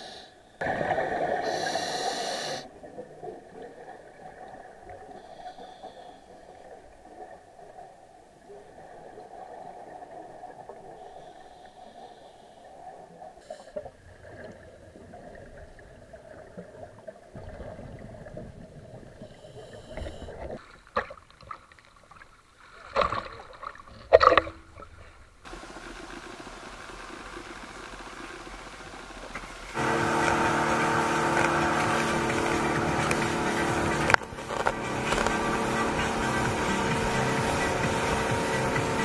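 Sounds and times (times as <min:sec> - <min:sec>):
muffled underwater gurgling: 0:00.0 - 0:20.6, 0:25.5 - 0:39.0
waves: 0:00.0 - 0:39.0
wind: 0:11.0 - 0:25.8.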